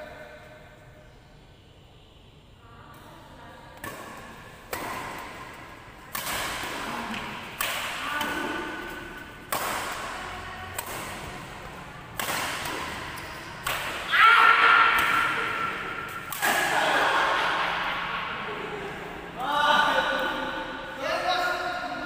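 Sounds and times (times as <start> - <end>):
rackets smacking shuttlecock: 3.8 - 16.8.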